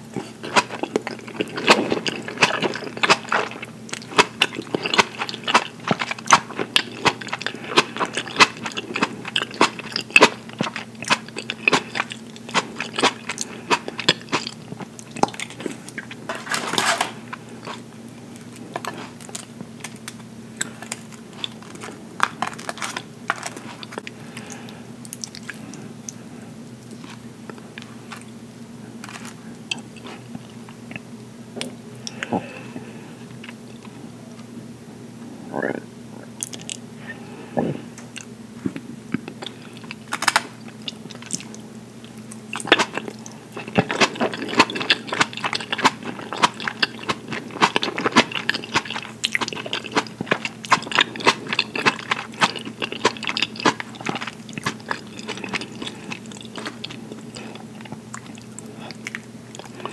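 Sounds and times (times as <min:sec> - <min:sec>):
steady low hum: 0:00.0 - 0:59.9
wet chewing mouth sounds: 0:00.1 - 0:20.0, 0:20.6 - 0:26.2, 0:38.0 - 0:59.9.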